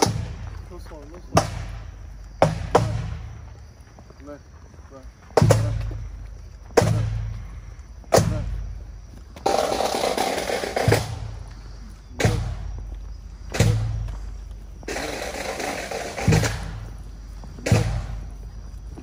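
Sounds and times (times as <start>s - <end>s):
bass drum beating: 0.0s - 3.5s, 5.4s - 7.5s, 8.1s - 8.8s, 10.7s - 11.5s, 12.1s - 19.0s
snare drum roll: 9.5s - 11.3s, 14.9s - 16.8s.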